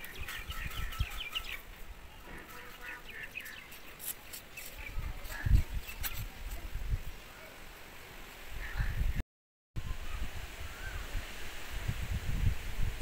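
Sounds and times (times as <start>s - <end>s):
birds chirping: 0.0s - 6.4s.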